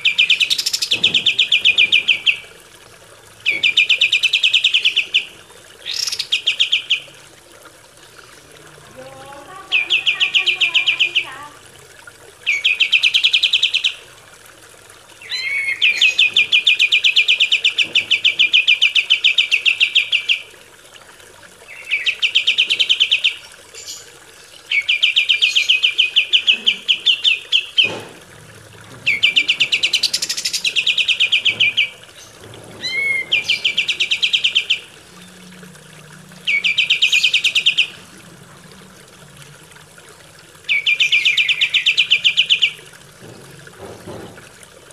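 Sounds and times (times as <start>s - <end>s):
bird singing rattling trills: 0.0s - 2.5s, 3.4s - 7.1s, 8.2s - 11.5s, 29.0s - 35.5s, 36.4s - 38.1s, 40.7s - 42.8s.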